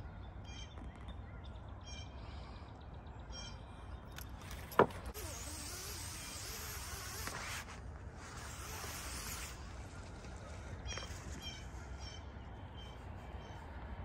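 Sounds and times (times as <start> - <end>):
steady outdoor hiss: 0.0 - 14.0
birds calling: 8.4 - 13.8.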